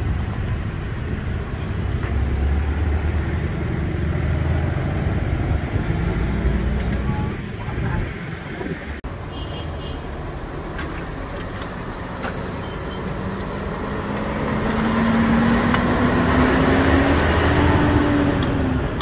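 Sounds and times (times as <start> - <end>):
roadside traffic rumble: 0.0 - 19.0
passing vehicle engine: 1.8 - 9.0, 13.1 - 19.0.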